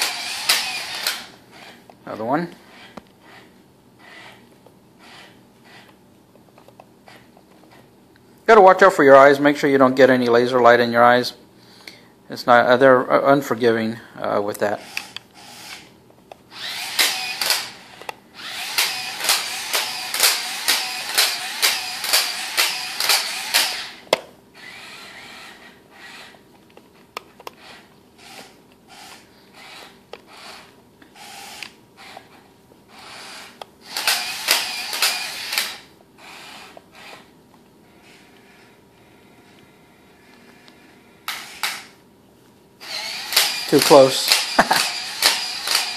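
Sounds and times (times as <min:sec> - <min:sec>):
robot gear motors whirring: 0:00.0 - 0:01.8, 0:02.7 - 0:04.4, 0:14.8 - 0:15.9, 0:16.5 - 0:24.0, 0:24.6 - 0:26.4, 0:27.6 - 0:32.3, 0:32.9 - 0:37.3, 0:42.8 - 0:45.9.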